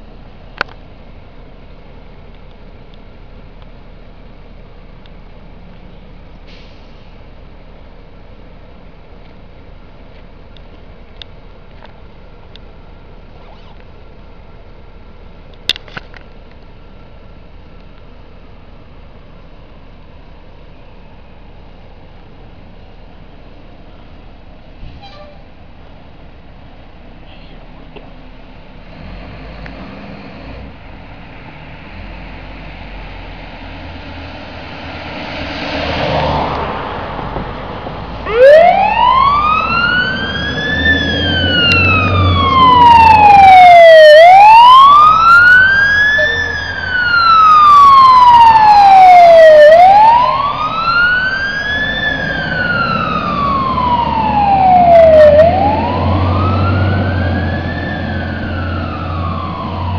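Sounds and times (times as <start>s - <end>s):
truck engine rumble: 0.0s - 59.9s
fire truck siren wailing: 34.9s - 59.9s.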